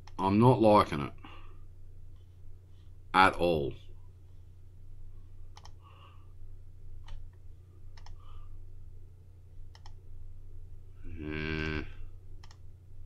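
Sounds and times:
steady low hum: 0:00.0 - 0:13.0
mouse buttons clicking: 0:05.5 - 0:05.8, 0:07.9 - 0:08.2, 0:09.7 - 0:10.0, 0:12.4 - 0:12.6.

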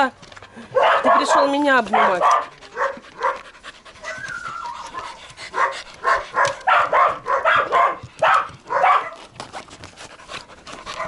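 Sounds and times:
dog panting: 0:00.1 - 0:11.0
dog whining: 0:04.0 - 0:07.7.

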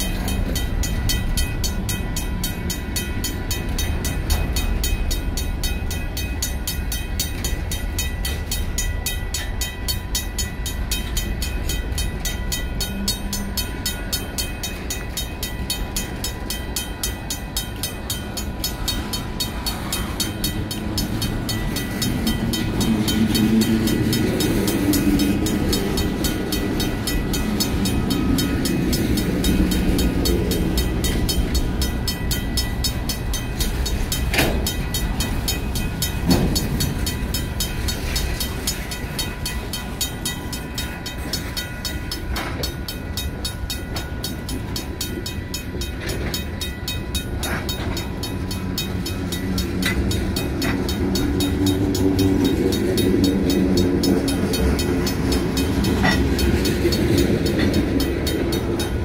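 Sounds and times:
crossing bell ringing rapidly: 0:00.0 - 0:59.0
train wheels rumbling on rail: 0:00.0 - 0:59.0
sharp clanks: 0:31.3 - 0:39.7.

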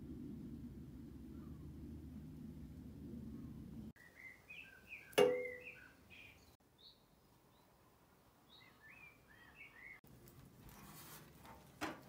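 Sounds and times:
low steady rumble: 0:00.0 - 0:04.0
small birds chirping: 0:03.3 - 0:11.1
sharp ringing clink: 0:05.2 - 0:05.7.

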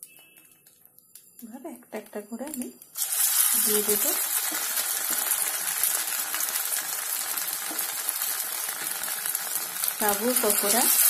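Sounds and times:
batter sizzling in hot oil: 0:02.5 - 0:11.0.

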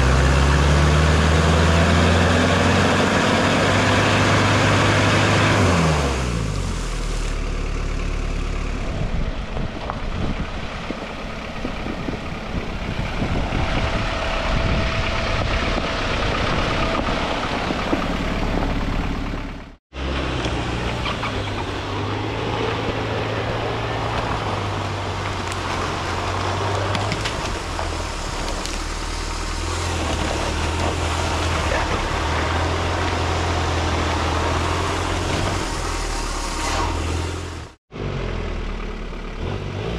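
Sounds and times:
off-road vehicle engine: 0:00.0 - 0:39.9.

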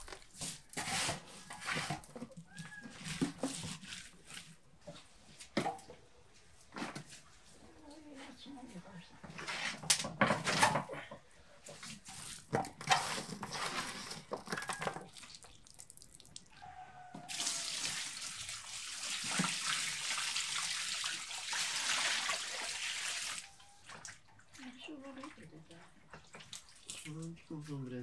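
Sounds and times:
water pouring into basin: 0:13.6 - 0:16.7, 0:17.3 - 0:24.5.

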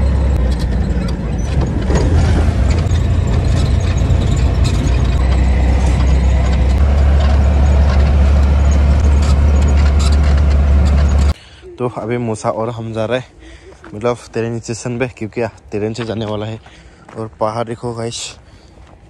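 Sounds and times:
vehicle engine drone: 0:00.0 - 0:11.4
road noise: 0:00.0 - 0:19.0.

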